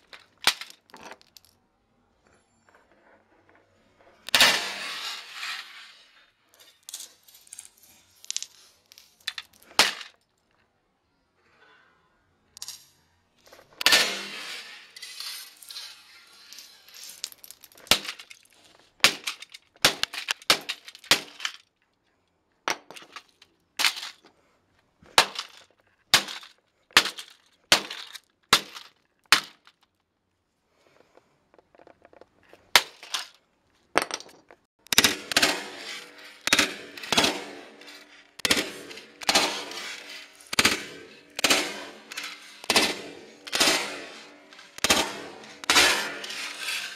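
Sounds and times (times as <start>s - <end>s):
keyboard smashed on concrete: 19.0s - 21.6s.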